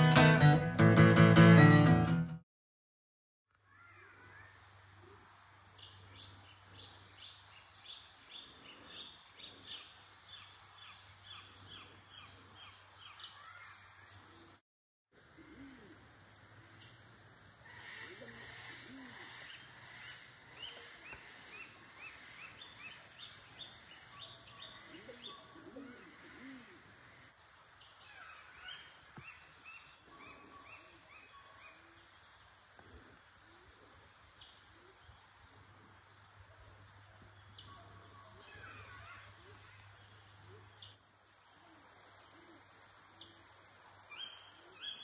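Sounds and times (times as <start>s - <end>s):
high-pitched insect drone: 15.3s - 45.0s
birds calling: 17.6s - 27.2s.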